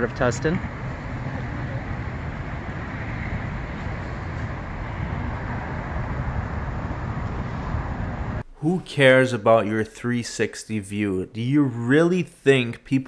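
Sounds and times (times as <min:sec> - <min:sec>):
road traffic: 0:00.0 - 0:08.5.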